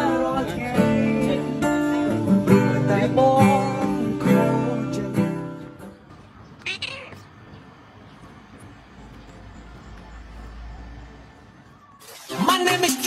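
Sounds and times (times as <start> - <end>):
acoustic guitar music: 0.0 - 6.2, 12.1 - 13.0.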